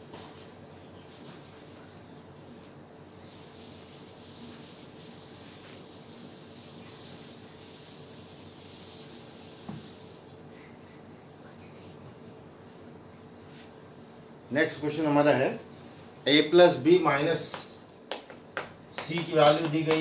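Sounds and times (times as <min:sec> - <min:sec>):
eraser rubbing on blackboard: 0:03.1 - 0:10.3.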